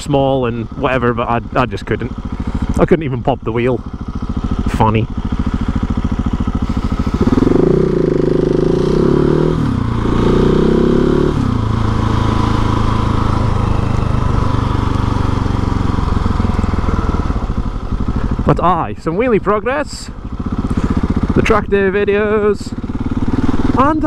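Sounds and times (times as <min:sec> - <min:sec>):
motorcycle engine accelerating: 0:00.0 - 0:24.0.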